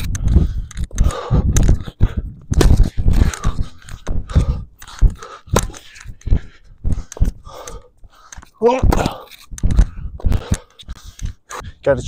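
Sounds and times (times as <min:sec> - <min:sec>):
wind buffeting microphone: 0:00.0 - 0:07.5, 0:09.0 - 0:10.6.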